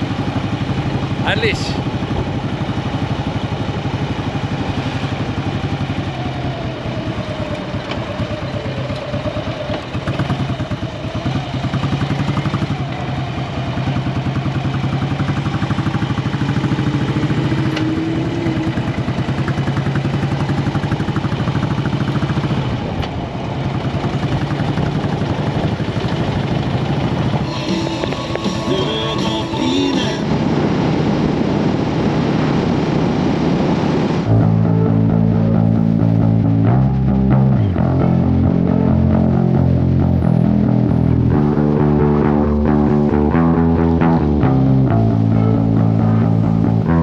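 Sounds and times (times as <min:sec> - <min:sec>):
motorcycle engine revving: 0:00.0 - 0:47.0.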